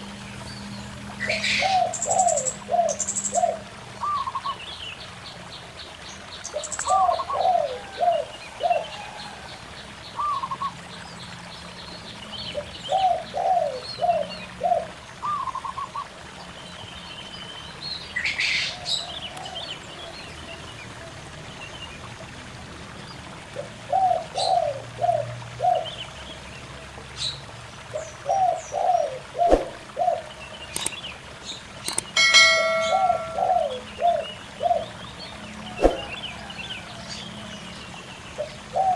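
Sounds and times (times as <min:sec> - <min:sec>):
faint stream babbling: 0:00.0 - 0:38.9
small birds chirping: 0:27.2 - 0:36.4
high ringing bird call: 0:31.9 - 0:34.3.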